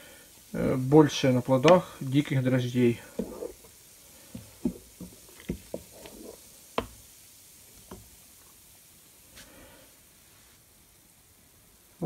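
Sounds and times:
wooden spatula stirring thick liquid: 1.1s - 8.6s.

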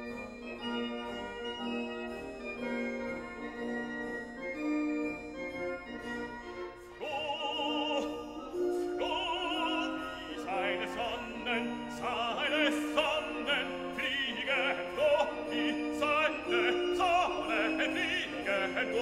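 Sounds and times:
operatic voice singing: 7.0s - 19.0s.

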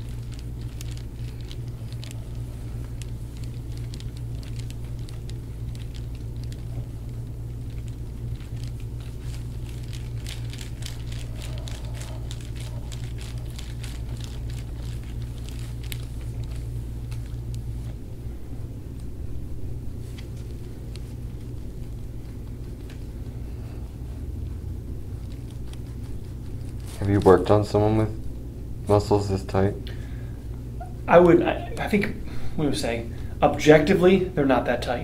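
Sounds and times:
crackling of massage on oiled skin: 0.0s - 18.1s, 19.8s - 28.3s
steady low hum: 0.0s - 35.0s.

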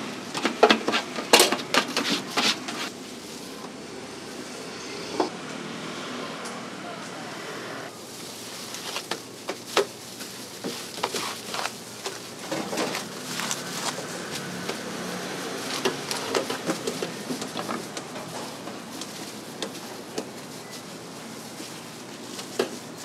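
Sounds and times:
plastic gloves rustling: 0.0s - 4.5s, 7.9s - 23.0s
paper wrappers crinkling: 7.9s - 23.0s.

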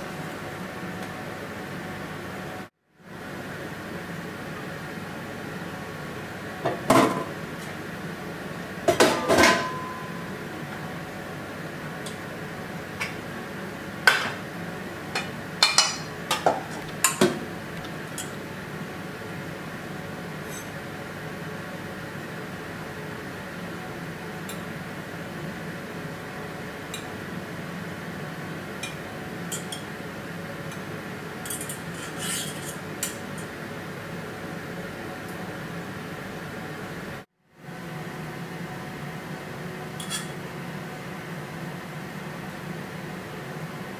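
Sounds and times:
steady background hum: 0.0s - 43.9s
dishes clattering and clinking: 8.9s - 10.0s, 15.2s - 17.4s
metal utensil scraping ceramic plate: 31.5s - 32.8s, 40.0s - 40.3s.

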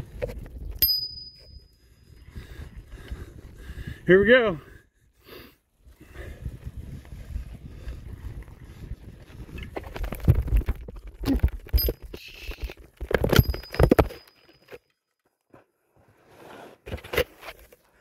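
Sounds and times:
low rumble of bike riding: 0.0s - 11.9s.

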